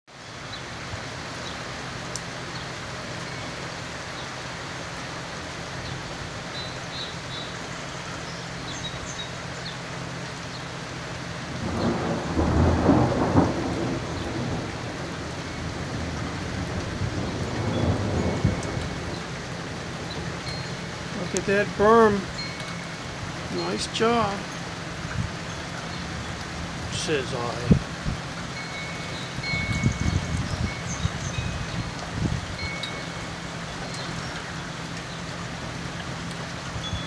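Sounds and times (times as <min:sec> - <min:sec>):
rain on wet pavement: 0:00.1 - 0:37.0
thunder rumbling: 0:11.6 - 0:22.4.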